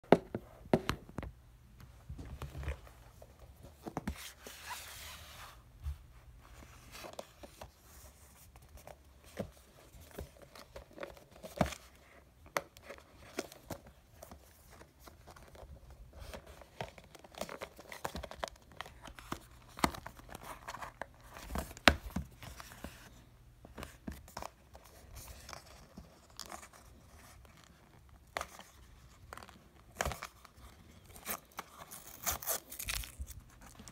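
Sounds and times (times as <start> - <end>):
paper tearing and crinkling: 31.2 - 33.9.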